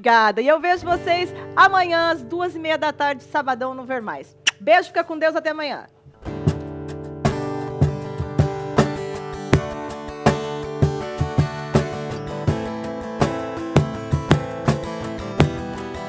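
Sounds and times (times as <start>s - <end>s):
acoustic guitar strumming: 0.8s - 4.4s, 6.0s - 16.0s
cajon beating: 6.2s - 16.0s.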